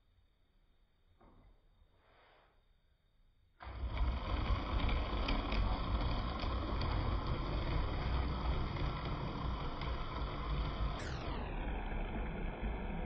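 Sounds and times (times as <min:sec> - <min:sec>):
wheels clicking over rail joints: 0:03.6 - 0:11.2
model train motor and wheel rumble: 0:03.6 - 0:13.0.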